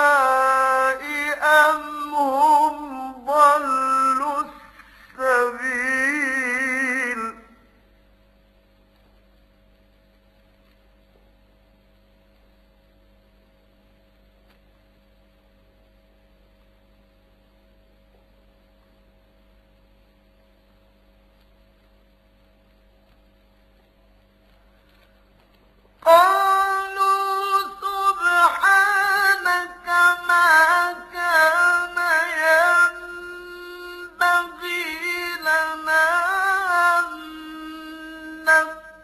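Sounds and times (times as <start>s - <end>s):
person reciting: 0.0s - 7.8s, 26.0s - 39.0s
recording hum and hiss: 0.0s - 39.0s.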